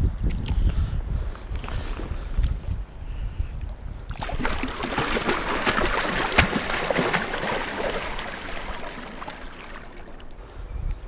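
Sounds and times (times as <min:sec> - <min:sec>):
fish splashing in shallow water: 0:04.1 - 0:10.4.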